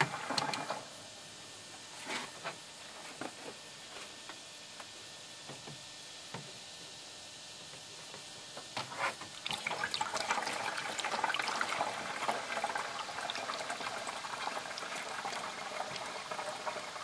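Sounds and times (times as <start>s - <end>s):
water pouring through funnel: 9.4s - 17.0s.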